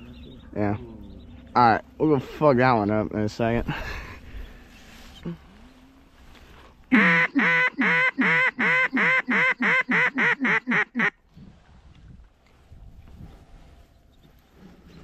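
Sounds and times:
duck call quacks: 6.9s - 11.2s.

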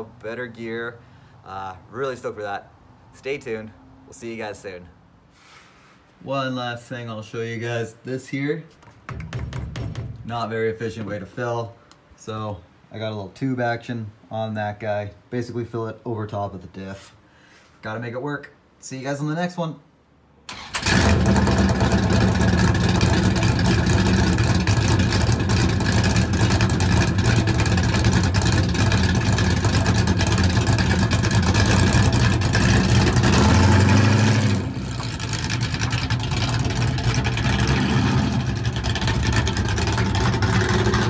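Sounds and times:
car engine idling and revving: 20.8s - 41.0s.

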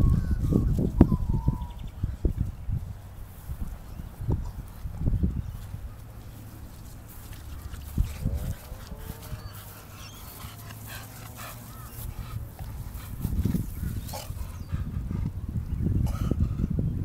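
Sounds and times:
dog breathing hard: 6.9s - 16.8s.

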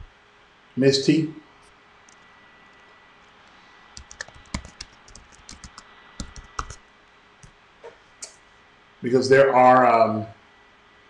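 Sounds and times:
typing on computer keyboard: 4.0s - 6.8s.

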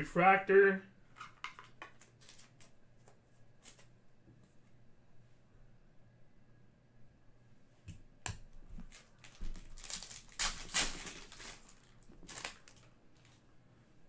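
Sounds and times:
foil pack tearing and crinkling: 8.9s - 12.9s.

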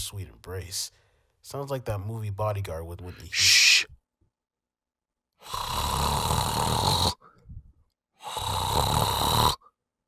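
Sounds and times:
man snoring: 5.4s - 7.3s, 8.2s - 9.7s.

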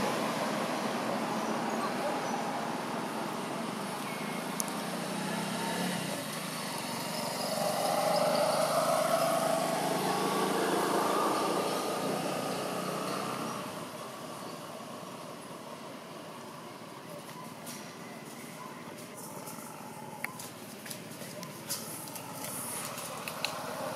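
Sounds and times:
vehicle engine passing: 0.0s - 16.6s.

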